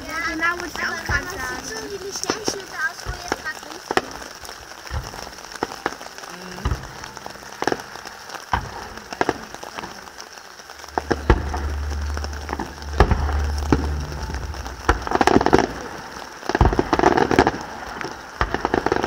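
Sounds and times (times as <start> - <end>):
distant fireworks crackling: 0.0 - 19.0
low steady rumble: 10.8 - 17.1.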